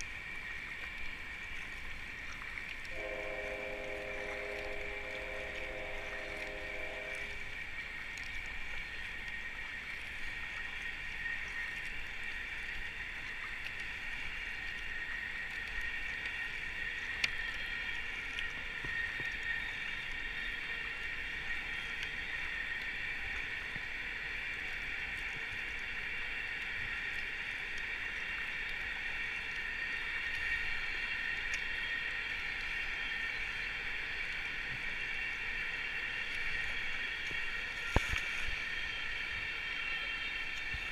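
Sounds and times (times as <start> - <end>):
horn-like steady tone: 2.9 - 7.8
river water rushing: 2.9 - 8.0.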